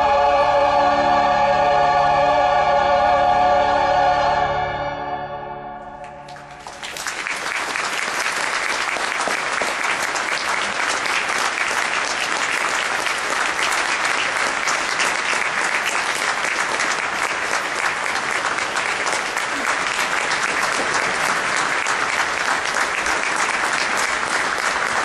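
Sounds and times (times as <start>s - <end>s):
audience applauding: 6.0s - 25.0s.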